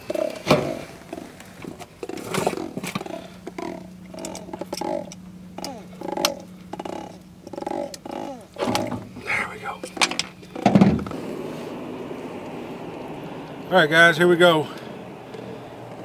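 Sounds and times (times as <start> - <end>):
steady low hum: 0.0 - 16.0
catfish croaking grunts: 2.0 - 10.9.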